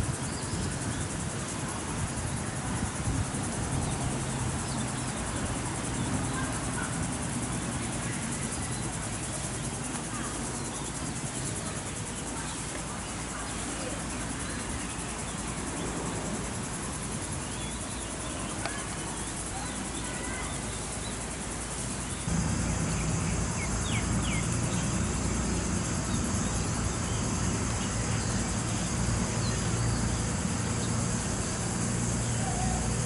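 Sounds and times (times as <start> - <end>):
insects droning: 0.0 - 33.0
low rumble: 22.3 - 26.7.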